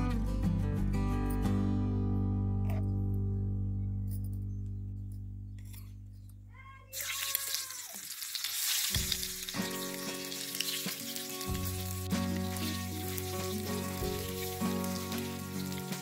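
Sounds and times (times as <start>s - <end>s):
eggs sizzling in hot oil: 7.0s - 16.0s.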